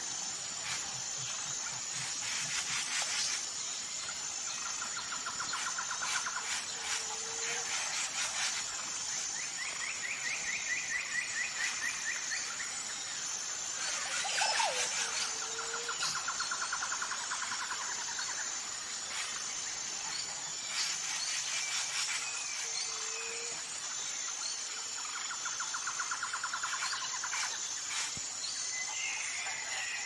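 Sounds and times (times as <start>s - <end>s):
high insect drone: 0.0s - 30.0s.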